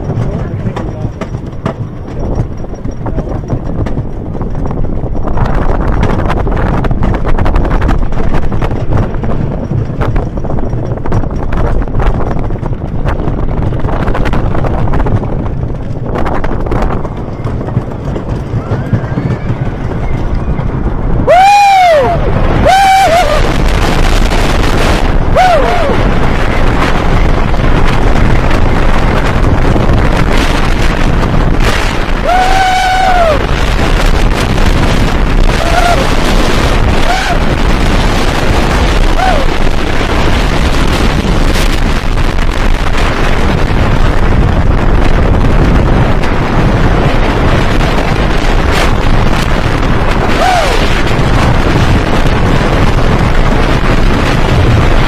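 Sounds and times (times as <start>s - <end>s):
roller coaster wheels clattering: 0.0s - 55.0s
wind buffeting microphone: 0.0s - 55.0s
riders screaming: 18.3s - 23.8s, 25.1s - 26.4s, 32.1s - 34.0s, 35.3s - 38.0s, 38.8s - 39.7s, 50.0s - 51.2s.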